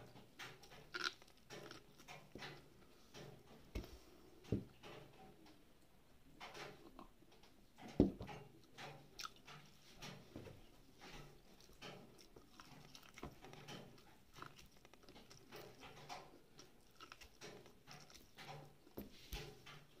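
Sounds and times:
chewing corn on the cob: 0.0 - 2.6, 8.6 - 9.8, 11.0 - 20.0.

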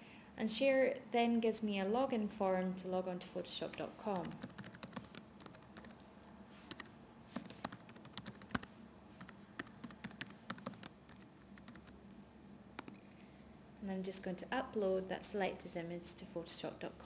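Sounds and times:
typing on computer keyboard: 4.2 - 6.0, 6.7 - 6.9, 7.6 - 12.0.

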